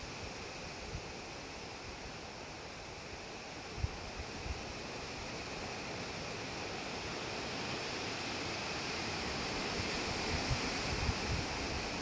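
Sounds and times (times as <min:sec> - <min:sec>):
wind rustling leaves: 0:00.0 - 0:12.0
wind bumps on microphone: 0:09.8 - 0:12.0.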